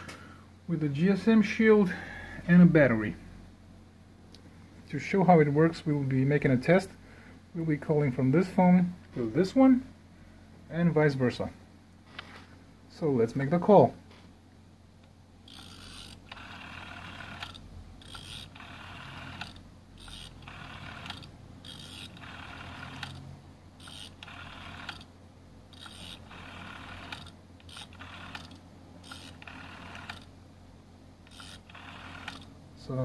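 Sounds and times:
rotary telephone dial whirring: 15.4 - 25.1, 25.7 - 30.4, 31.2 - 32.6.

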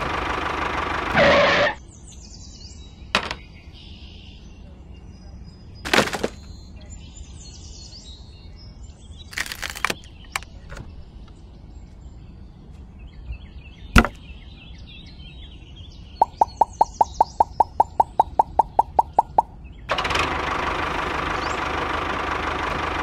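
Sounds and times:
plastic parts clattering: 5.9 - 6.5, 9.3 - 10.5
even run of clicks: 9.3 - 10.9, 16.2 - 19.5
sharp knock: 14.0 - 14.2.

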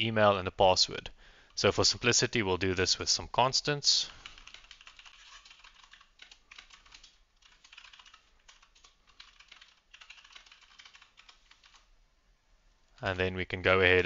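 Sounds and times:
computer keyboard typing: 4.1 - 11.9.

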